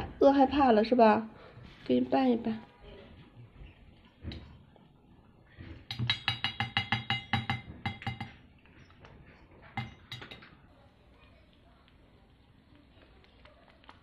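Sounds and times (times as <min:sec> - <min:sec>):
spoon clinking against metal bowl: 0:05.9 - 0:08.4, 0:09.8 - 0:10.5.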